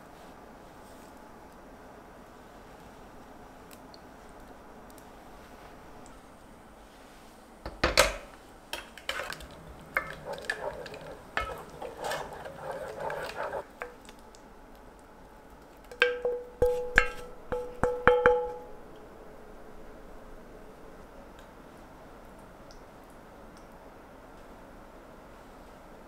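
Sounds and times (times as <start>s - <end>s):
wooden spoon scraping a pot: 8.8s - 14.0s, 16.6s - 17.3s.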